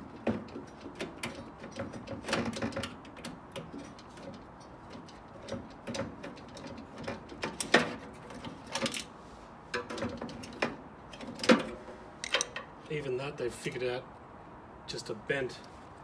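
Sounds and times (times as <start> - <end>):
metallic clicks and rattles: 9.7 - 12.8.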